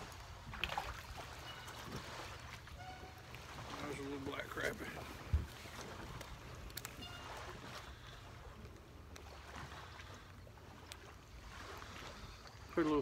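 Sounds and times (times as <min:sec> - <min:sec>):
low rumble of wind and water: 0:00.0 - 0:13.0
light clicks handling fish: 0:05.2 - 0:11.2.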